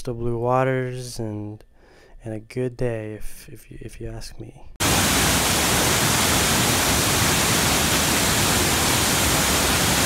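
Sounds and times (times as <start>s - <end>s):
waterfall rushing: 4.8s - 10.0s.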